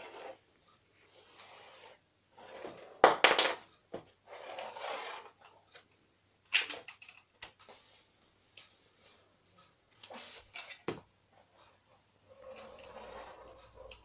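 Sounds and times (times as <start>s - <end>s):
plastic bricks scraping on wooden floor: 0.0s - 0.4s, 1.1s - 3.5s, 4.2s - 5.4s.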